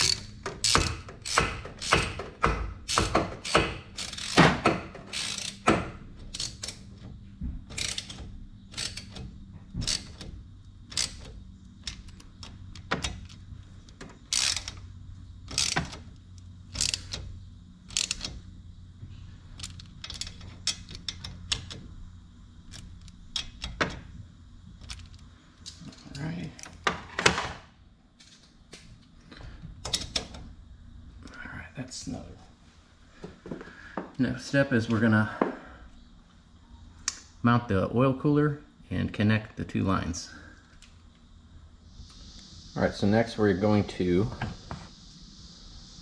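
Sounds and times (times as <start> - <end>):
socket ratchet clicking: 0.0 - 7.0, 7.7 - 18.5, 19.6 - 21.9.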